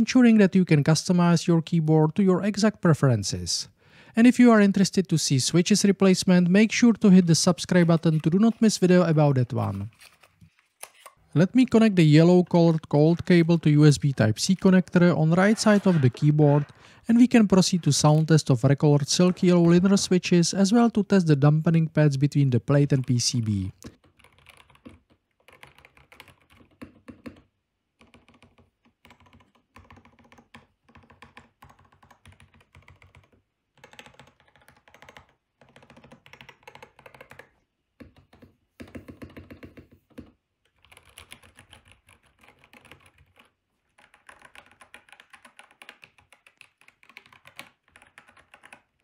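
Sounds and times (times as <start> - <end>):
mechanical keyboard typing: 23.9 - 49.0.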